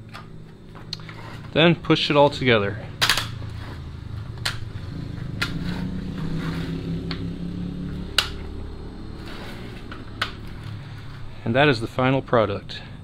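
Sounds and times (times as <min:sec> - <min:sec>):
low mechanical hum: 0:00.0 - 0:13.0
vinyl pieces clicking together: 0:03.0 - 0:03.5.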